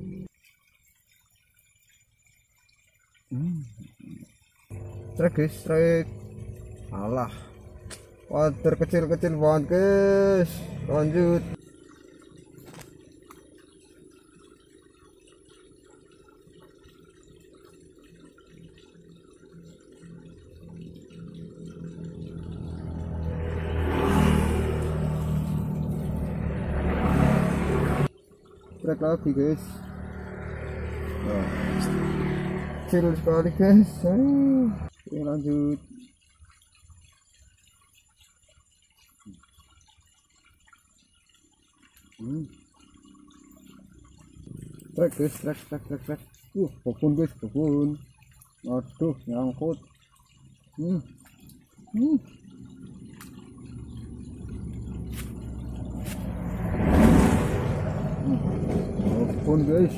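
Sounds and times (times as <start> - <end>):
water trickling in a ditch: 0.0 - 59.9
low steady hum: 3.3 - 35.8
small irregular ticks: 11.6 - 23.0, 35.2 - 56.4.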